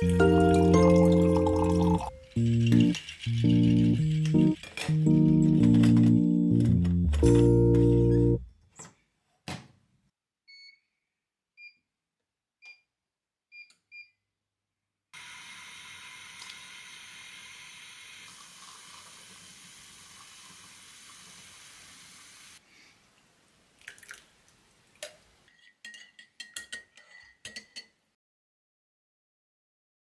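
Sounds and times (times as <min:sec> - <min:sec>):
moka pot hissing gurgle: 0:15.2 - 0:22.6
spoon clinking against mug: 0:25.5 - 0:28.0.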